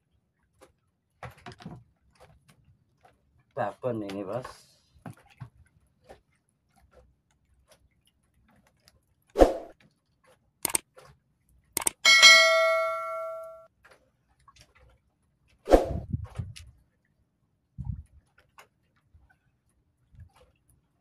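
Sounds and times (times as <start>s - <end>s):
sharp clicks: 10.6s - 10.9s, 11.8s - 12.0s
bright bell ding: 12.0s - 13.6s.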